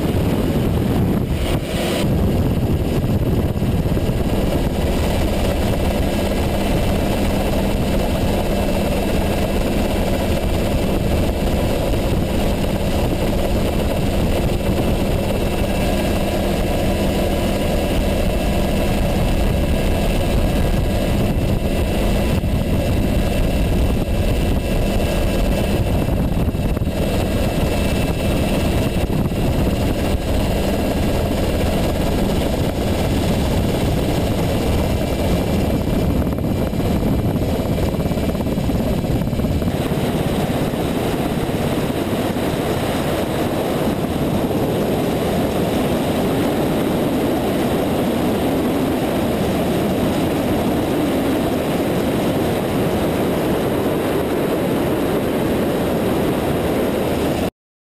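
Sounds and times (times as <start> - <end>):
helicopter rotor and engines: 0.0 - 57.5.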